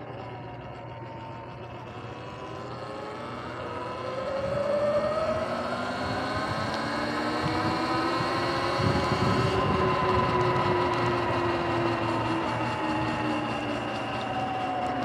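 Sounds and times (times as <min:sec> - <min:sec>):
electric motor and chain whine: 0:00.0 - 0:15.0.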